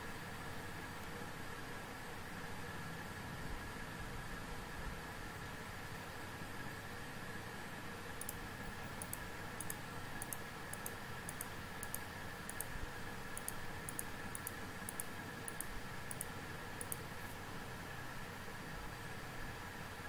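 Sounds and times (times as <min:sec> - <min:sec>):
steady background hiss: 0:00.0 - 0:20.0
computer mouse clicking: 0:08.2 - 0:17.1.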